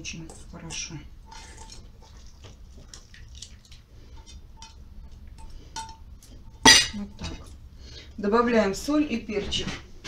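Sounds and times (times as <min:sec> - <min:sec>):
low steady hum: 0:00.0 - 0:10.0
utensil scraping a metal bowl: 0:01.2 - 0:02.4.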